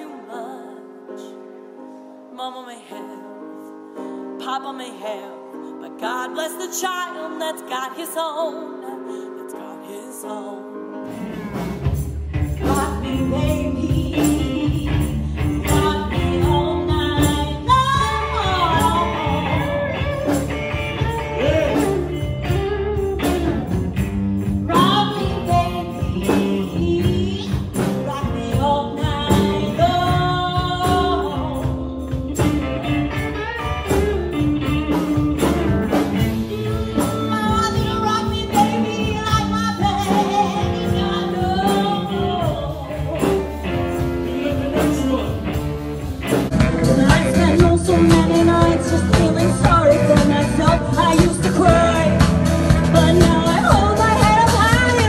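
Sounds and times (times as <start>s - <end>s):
woman singing: 0.0s - 1.4s, 2.3s - 3.6s, 4.4s - 11.0s, 12.6s - 23.8s, 24.7s - 35.6s, 36.4s - 45.5s, 46.4s - 55.0s
drums: 10.9s - 55.0s
electric guitars: 11.0s - 55.0s
shaken tambourine: 11.7s - 55.0s.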